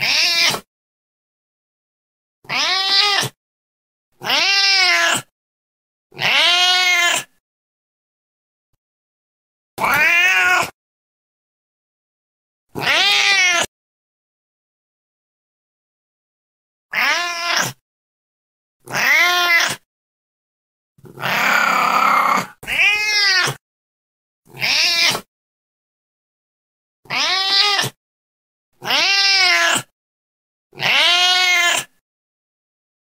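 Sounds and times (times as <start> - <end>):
cat meowing: 0.0 - 0.7, 2.4 - 3.4, 4.2 - 5.3, 6.2 - 7.3, 9.8 - 10.8, 12.8 - 13.7, 16.9 - 17.8, 18.9 - 19.8, 21.1 - 23.6, 24.6 - 25.3, 27.1 - 28.0, 28.8 - 29.9, 30.8 - 31.9
cat yowling: 0.0 - 0.7, 2.4 - 3.4, 4.2 - 5.3, 6.2 - 7.3, 9.8 - 10.8, 12.8 - 13.7, 16.9 - 17.8, 18.9 - 19.8, 21.1 - 23.6, 24.5 - 25.3, 27.1 - 28.0, 28.8 - 29.9, 30.8 - 31.9.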